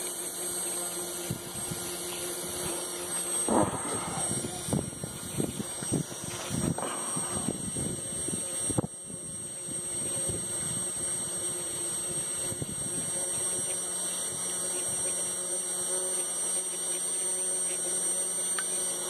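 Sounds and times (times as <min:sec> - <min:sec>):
electric fuel pump humming: 0:00.0 - 0:19.0.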